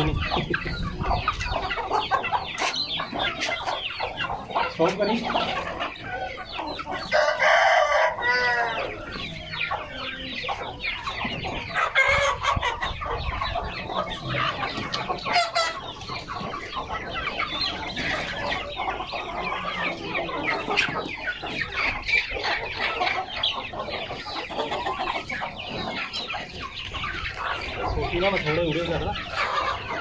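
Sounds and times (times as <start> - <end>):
chickens clucking: 0.0 - 30.0
rooster crowing loudly: 7.1 - 8.9.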